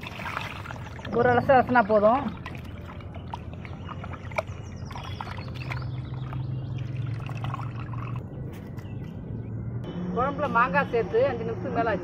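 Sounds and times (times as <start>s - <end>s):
water splashing in a clay pot: 0.0s - 8.3s.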